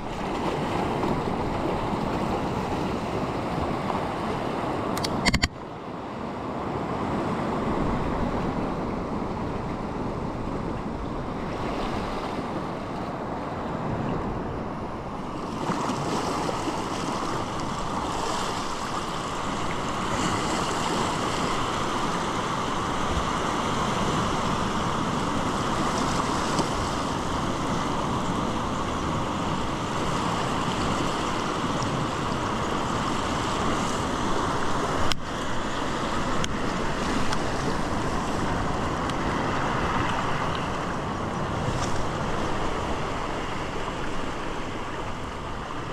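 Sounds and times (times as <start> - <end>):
surf washing over rocks: 0.0 - 45.9
sharp click: 5.0 - 5.6.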